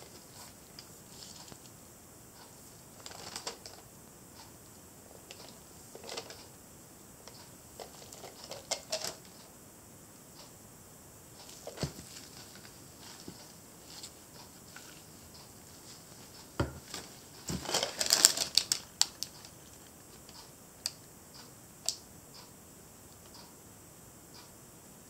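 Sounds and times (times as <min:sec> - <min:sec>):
soft rustling: 0:00.0 - 0:03.8, 0:11.3 - 0:20.4.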